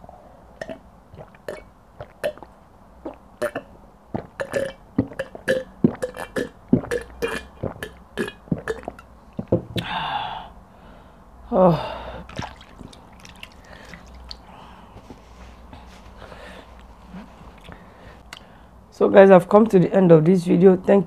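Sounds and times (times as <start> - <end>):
loud burp falling in pitch: 0.6 - 2.5, 3.1 - 9.1
person gulping water: 0.6 - 9.9, 12.2 - 14.6
breathy exhale: 9.8 - 12.3, 13.6 - 16.8.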